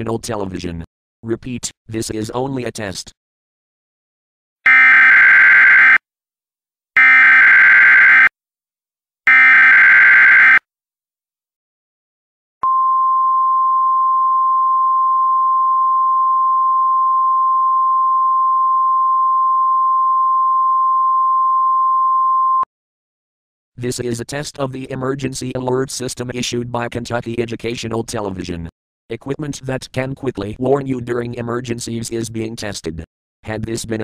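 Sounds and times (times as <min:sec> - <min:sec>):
screechy data tone bursts: 0:04.7 - 0:06.0, 0:07.0 - 0:08.3, 0:09.3 - 0:10.6
steady alert tone: 0:04.7 - 0:06.0, 0:07.0 - 0:08.3, 0:09.3 - 0:10.6.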